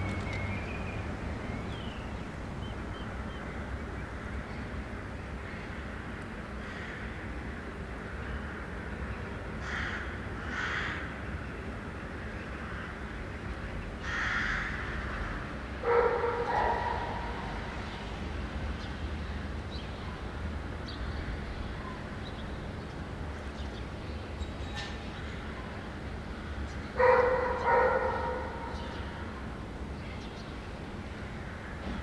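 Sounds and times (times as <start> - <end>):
vehicle rolling over brick paving: 0.0 - 4.0
dog barking: 15.8 - 17.6, 27.0 - 28.8.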